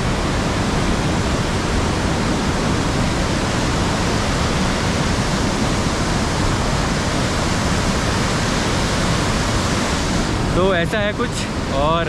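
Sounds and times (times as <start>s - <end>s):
river rushing: 0.0s - 12.0s.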